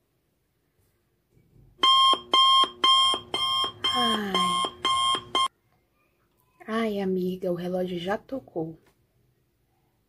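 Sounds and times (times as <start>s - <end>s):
alarm clock beeping: 1.8s - 5.5s
person's voice: 3.9s - 4.7s, 6.6s - 8.8s.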